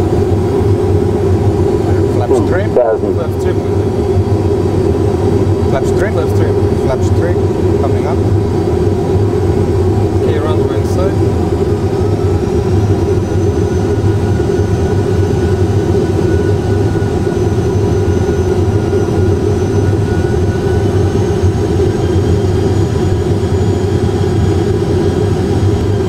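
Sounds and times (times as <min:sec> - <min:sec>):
engine and airflow rumble: 0:00.0 - 0:26.0
faint whine: 0:01.7 - 0:03.9.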